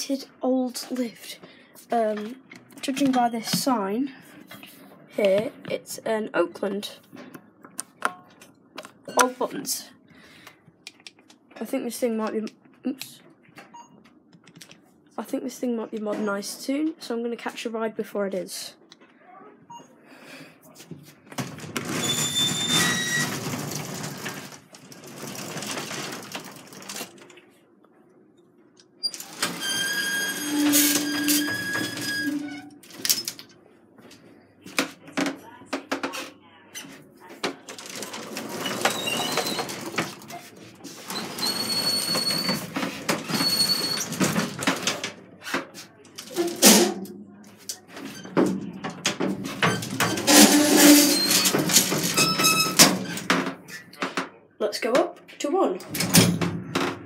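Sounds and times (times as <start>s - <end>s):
lattice gate rattling and clanking: 21.4s - 27.2s, 29.1s - 33.4s, 48.4s - 53.6s
metal door opening: 21.4s - 27.2s, 29.0s - 33.4s, 46.2s - 47.2s, 48.0s - 53.9s, 55.8s - 57.0s.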